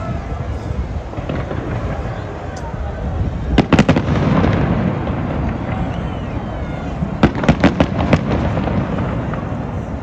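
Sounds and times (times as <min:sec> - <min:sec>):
fireworks rumbling: 0:00.0 - 0:10.0
sharp firework bangs: 0:01.1 - 0:02.4, 0:03.5 - 0:06.2, 0:07.0 - 0:10.0.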